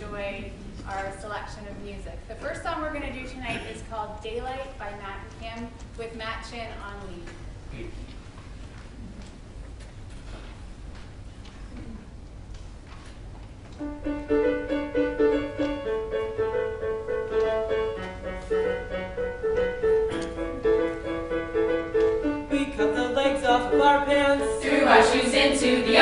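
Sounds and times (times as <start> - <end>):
piano playing short repeated notes: 13.8 - 25.2.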